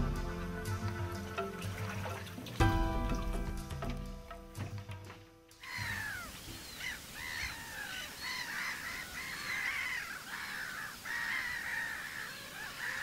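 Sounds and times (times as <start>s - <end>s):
gulls calling: 0.0s - 13.0s.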